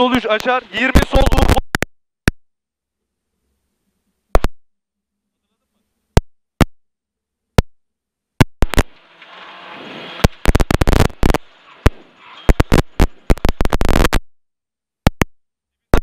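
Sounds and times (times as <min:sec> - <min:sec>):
sharp loud clicks: 0:08.4 - 0:09.1
rushing noise: 0:08.6 - 0:14.1.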